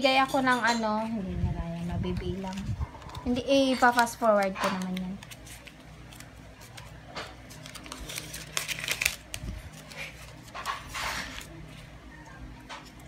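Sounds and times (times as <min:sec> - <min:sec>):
paper banknotes rustling: 0:01.8 - 0:11.9.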